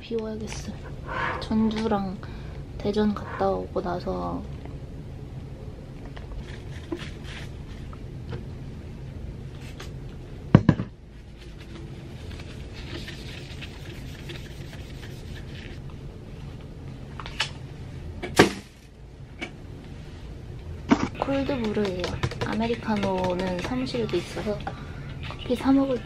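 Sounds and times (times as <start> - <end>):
knocks on desk: 10.6 - 10.9
tissue rubbing phone screen: 11.5 - 15.8.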